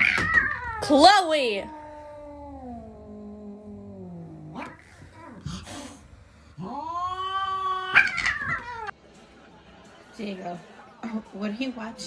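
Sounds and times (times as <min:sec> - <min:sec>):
cats yowling: 0:00.0 - 0:05.9, 0:06.6 - 0:08.9
cat hissing: 0:04.1 - 0:08.9.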